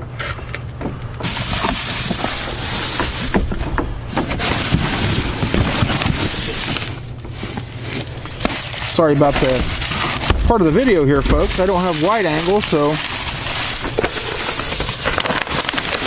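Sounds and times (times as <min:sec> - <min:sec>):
steady low hum: 0:00.0 - 0:16.0
plastic bags and cardboard rustling: 0:01.2 - 0:16.0.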